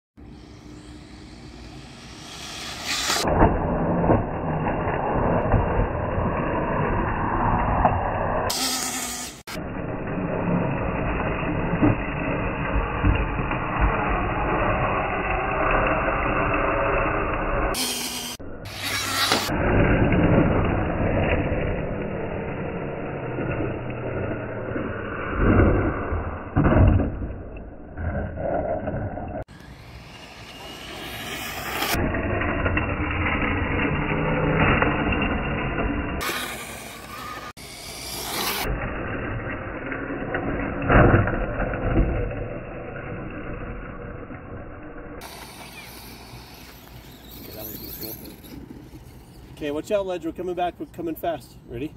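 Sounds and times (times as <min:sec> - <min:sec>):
radio-controlled car driving: 0:00.2 - 0:51.9
tyres scrubbing on asphalt: 0:00.4 - 0:03.9, 0:45.2 - 0:50.0
electric motor whining: 0:08.4 - 0:25.0, 0:29.5 - 0:44.6, 0:45.2 - 0:49.6.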